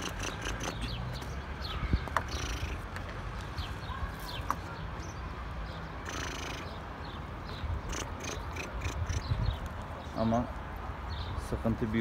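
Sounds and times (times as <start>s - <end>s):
high bird chirps: 0.0s - 2.9s, 3.6s - 10.2s
low wind rumble on microphone: 7.6s - 10.1s.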